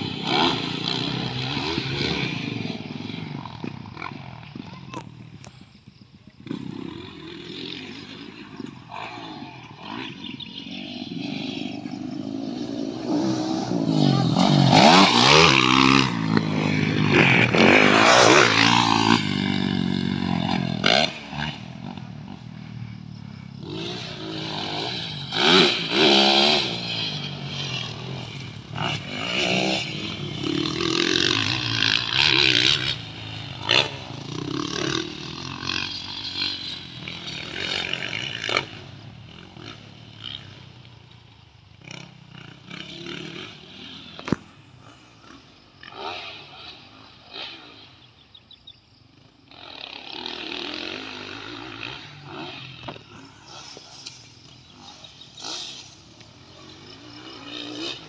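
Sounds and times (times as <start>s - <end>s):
dirt bike engines revving: 0.0s - 58.0s.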